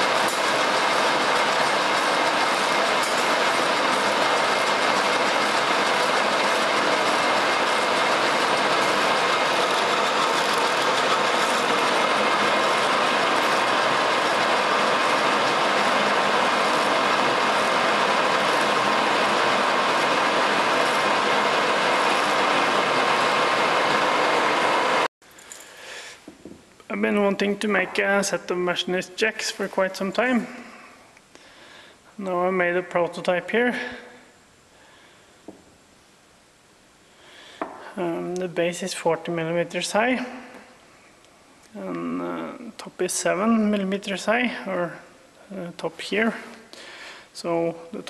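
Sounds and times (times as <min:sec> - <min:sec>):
lathe cutting steel: 0:00.0 - 0:25.1.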